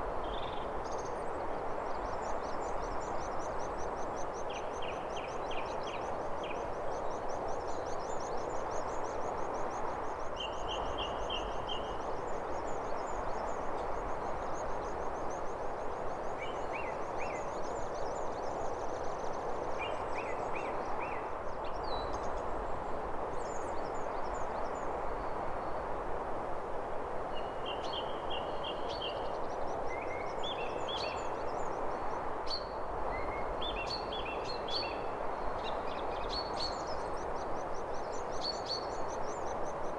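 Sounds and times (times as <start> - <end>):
steady rushing hiss: 0.0 - 39.9
small birds chirping: 27.4 - 39.9.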